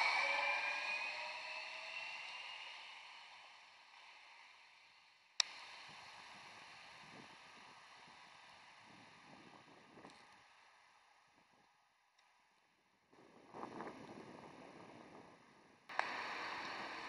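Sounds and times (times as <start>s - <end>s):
faint hiss with low rumbles: 13.1s - 17.0s.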